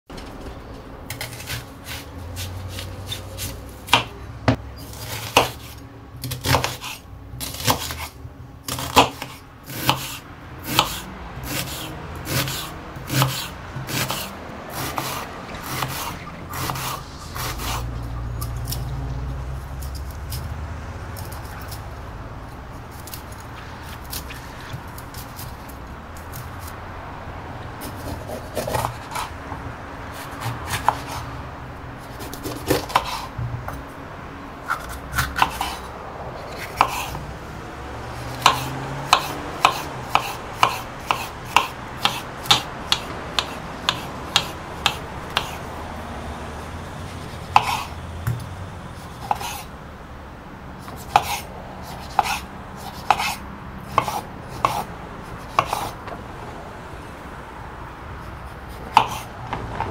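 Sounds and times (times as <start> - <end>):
knife chopping on wooden board: 1.1 - 8.1, 8.7 - 17.8, 27.9 - 29.3, 30.2 - 31.2, 32.2 - 33.8, 34.7 - 35.8, 36.5 - 37.2, 38.3 - 45.6, 47.6 - 48.4, 49.2 - 49.6, 50.8 - 56.0, 58.8 - 59.9.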